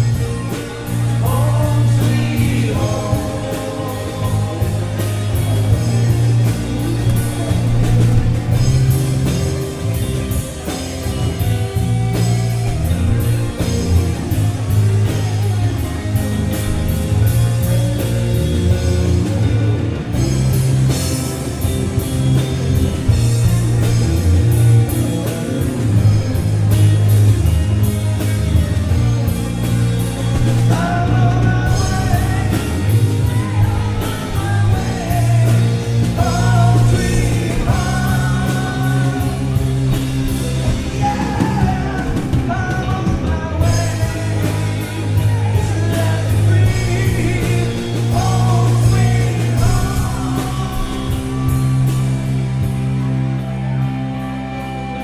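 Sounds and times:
rock band playing live: 0.0s - 55.0s
woman singing lead vocal: 30.7s - 39.7s.

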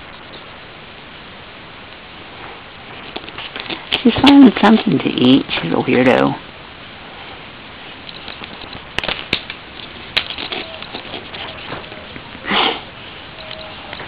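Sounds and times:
dry leaves rustling: 2.0s - 6.4s, 7.2s - 14.0s.

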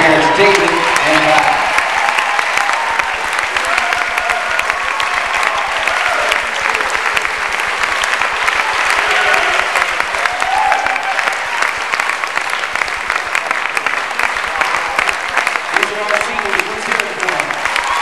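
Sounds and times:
crowd clapping: 0.0s - 18.0s
people shouting: 8.8s - 11.3s.

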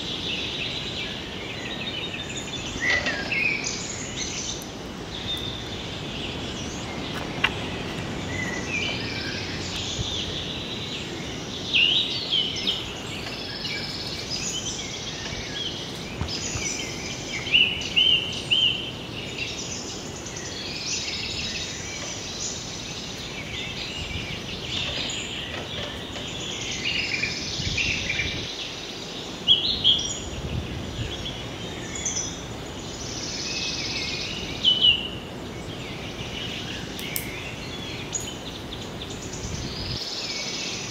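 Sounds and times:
birds chirping: 0.0s - 40.9s
steady background hiss: 0.0s - 40.9s.

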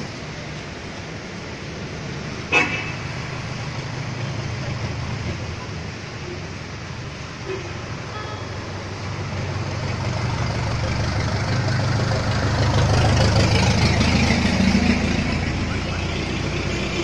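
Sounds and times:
bus engine passing: 0.0s - 17.0s.

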